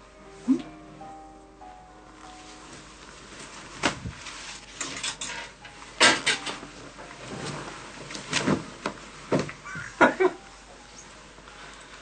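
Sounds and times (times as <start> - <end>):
clothing swishing and rustling: 2.2 - 6.0, 6.7 - 9.7.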